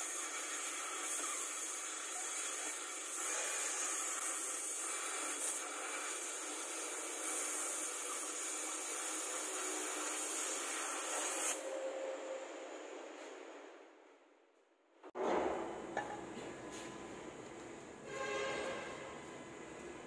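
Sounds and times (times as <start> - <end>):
gas torch hissing: 0.0 - 11.8.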